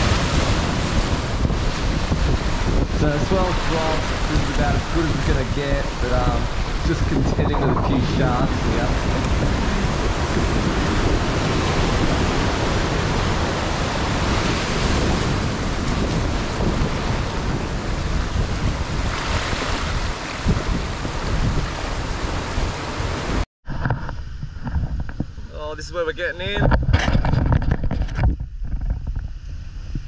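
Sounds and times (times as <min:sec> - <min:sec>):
surf breaking over rocks: 0:00.0 - 0:23.4
wind rumbling on microphone: 0:00.0 - 0:30.0.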